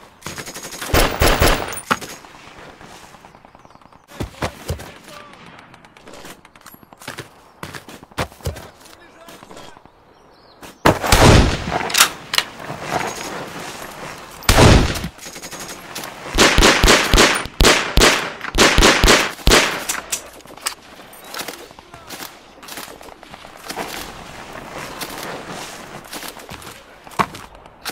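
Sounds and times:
rapid gunfire: 0.3 - 1.8, 16.4 - 19.9
gunshots: 0.3 - 2.0, 10.9 - 12.1, 14.5 - 20.1.

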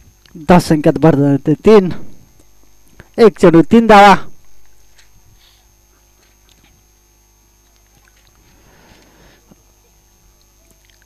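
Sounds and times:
faint mains hum: 0.0 - 11.0
faint rustle: 4.8 - 11.0.

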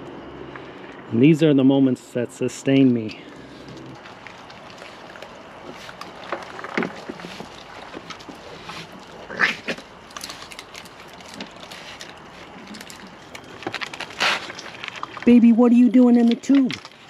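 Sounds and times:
raccoons clicking and scuffling: 3.2 - 17.0
raccoon calls: 8.4 - 9.9.

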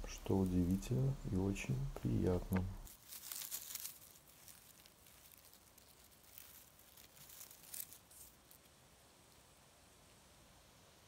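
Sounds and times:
leaf litter crackling and tearing: 0.1 - 1.0, 2.5 - 8.7.

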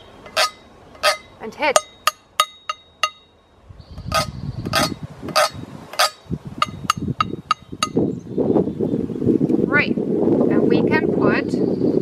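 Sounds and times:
stick scraping a ridged can: 0.2 - 1.3, 4.0 - 6.8
stick tapping on a tin can: 0.3 - 3.3, 4.1 - 8.0.

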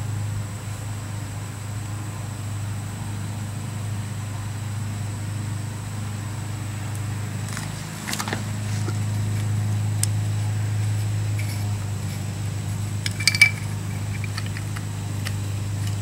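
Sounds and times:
steady low hum: 0.0 - 16.0
metal clicks and rattles: 11.3 - 16.0.

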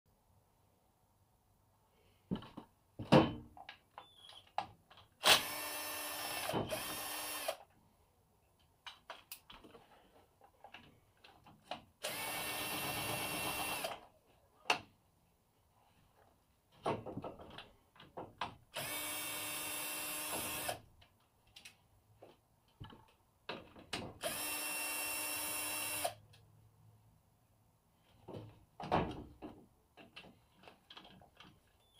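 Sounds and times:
cordless drill whining: 5.2 - 7.6, 12.0 - 14.0, 18.7 - 20.8, 24.2 - 26.2.

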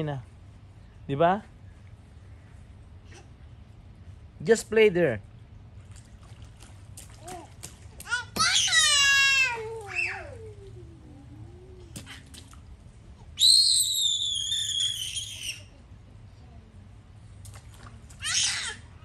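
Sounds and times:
toddler squealing: 8.1 - 10.6, 13.4 - 15.7, 18.2 - 18.9.

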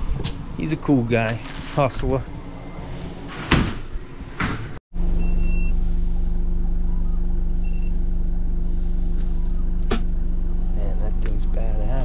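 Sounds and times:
machine beeping: 7.0 - 8.0.

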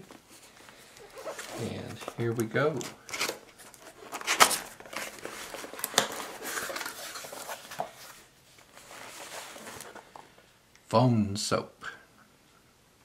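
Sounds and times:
packaging rustling: 0.0 - 10.4
cardboard flaps scraping: 1.1 - 10.1.

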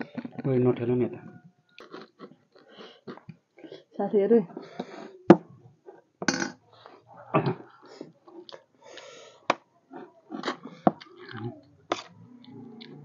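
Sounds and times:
chewing and sucking on bone: 1.8 - 3.3, 9.8 - 13.0.

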